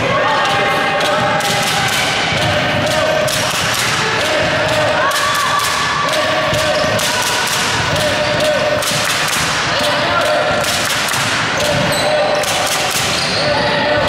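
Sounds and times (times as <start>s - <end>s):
voices of players and spectators: 0.0s - 14.0s
shoe squeaks: 11.6s - 12.4s, 13.0s - 14.0s.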